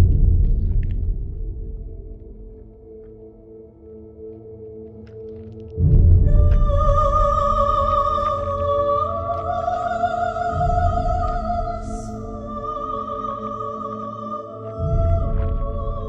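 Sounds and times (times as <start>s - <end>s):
deep rumble: 0.0s - 3.4s, 5.8s - 13.6s, 14.8s - 16.0s.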